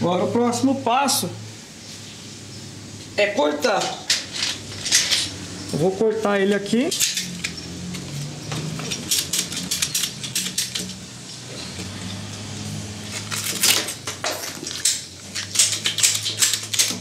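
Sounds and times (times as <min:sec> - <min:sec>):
ratchet pipe cutter clicking: 0:08.8 - 0:11.0.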